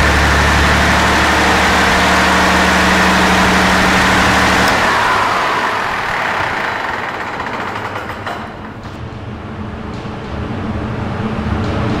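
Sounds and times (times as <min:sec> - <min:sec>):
diesel engine shutting down: 0:00.0 - 0:12.0.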